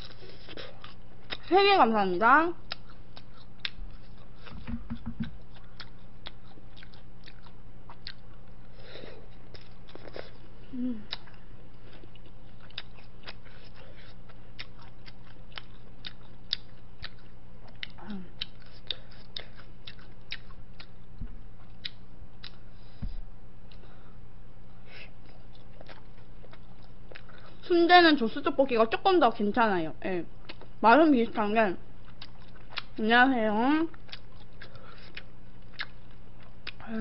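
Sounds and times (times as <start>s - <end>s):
chewing food close up: 0.0s - 1.5s, 2.6s - 23.0s, 25.2s - 27.6s, 30.4s - 30.8s, 32.0s - 33.0s, 33.9s - 36.9s
steady low hum: 0.0s - 37.0s.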